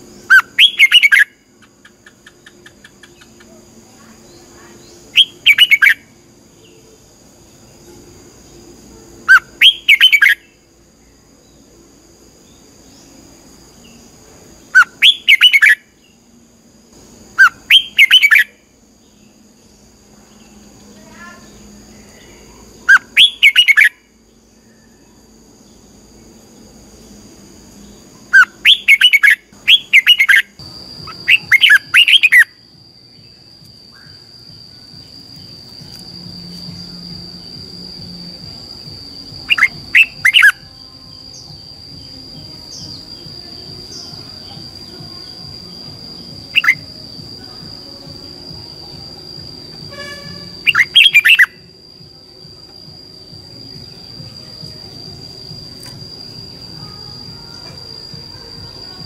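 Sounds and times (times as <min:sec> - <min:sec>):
bird singing whistled phrases: 0:00.3 - 0:01.4, 0:04.3 - 0:06.1, 0:09.3 - 0:10.5, 0:14.7 - 0:15.9, 0:17.4 - 0:18.6, 0:21.4 - 0:24.1, 0:28.3 - 0:32.6, 0:39.4 - 0:40.8, 0:46.5 - 0:46.8, 0:49.9 - 0:51.7.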